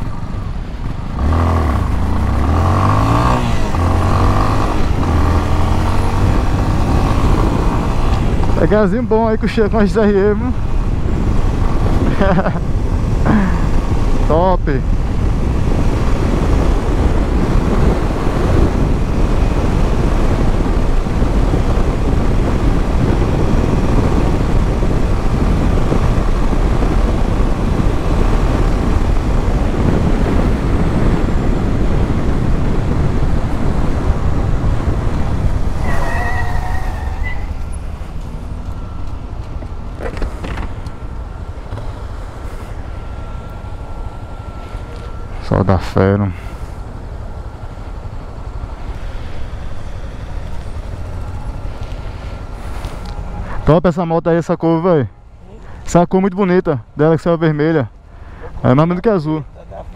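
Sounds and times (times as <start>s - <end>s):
motorcycle engine at speed: 0.0s - 53.8s
wind rush on microphone: 0.0s - 53.9s
wavering high tone: 35.8s - 39.4s, 42.7s - 46.2s.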